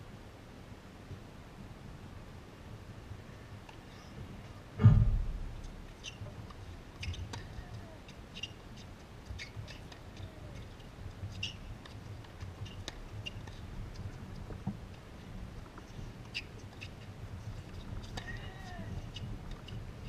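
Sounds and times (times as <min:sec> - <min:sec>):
loud low thump: 0:04.8 - 0:05.8.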